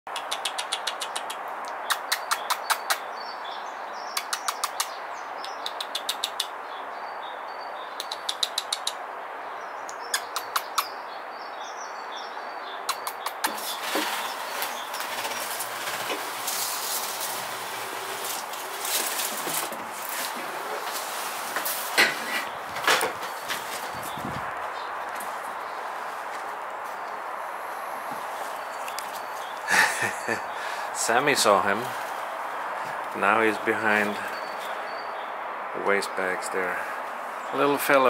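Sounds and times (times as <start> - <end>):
squirrel chattering clicks: 0.1 - 3.1, 4.1 - 6.6, 7.9 - 9.0, 9.9 - 11.0, 12.8 - 13.8
rustling and knocking: 13.5 - 25.4.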